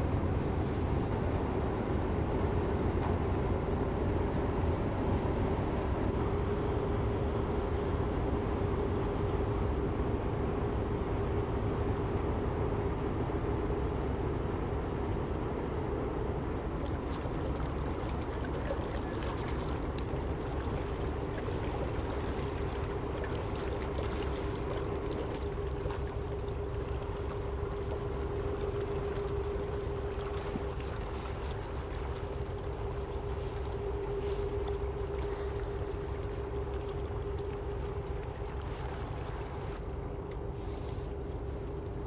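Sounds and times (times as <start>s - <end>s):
ship machinery drone: 0.0s - 42.0s
water splashing at stern: 16.7s - 42.0s.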